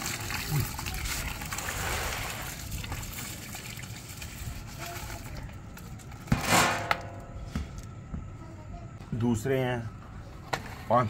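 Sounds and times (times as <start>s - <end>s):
rice pouring into water: 0.0s - 5.1s
water splashing and sloshing: 0.0s - 6.3s.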